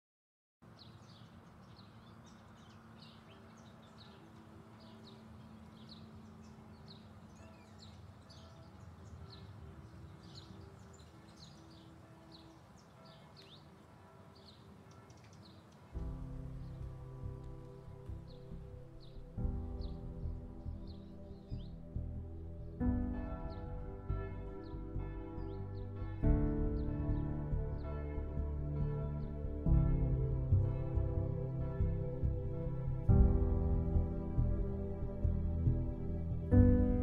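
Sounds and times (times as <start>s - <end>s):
small birds chirping: 0.7s - 28.4s
music: 3.0s - 37.0s.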